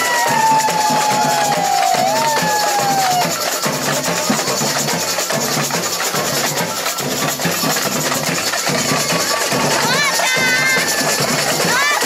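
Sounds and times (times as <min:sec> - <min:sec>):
snare drums and hand percussion: 0:00.0 - 0:12.0.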